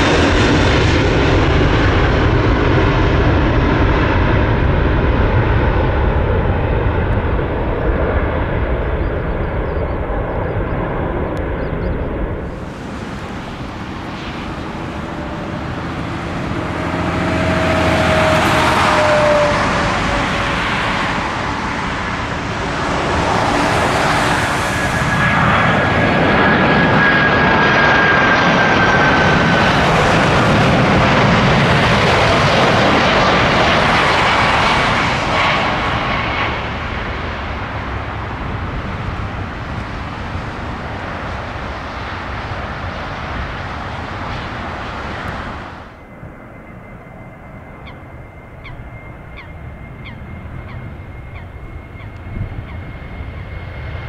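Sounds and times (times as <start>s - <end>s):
jet airliner engines passing: 0.0s - 54.0s.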